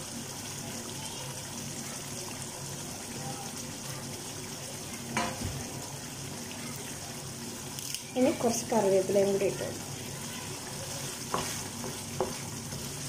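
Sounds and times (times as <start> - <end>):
curry sizzling in a pan: 0.0 - 13.0
wooden spatula stirring: 10.2 - 13.0.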